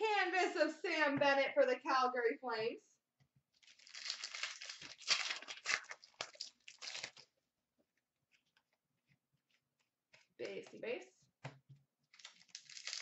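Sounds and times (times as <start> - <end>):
foil wrapper tearing and crinkling: 3.6 - 7.3, 12.1 - 13.0.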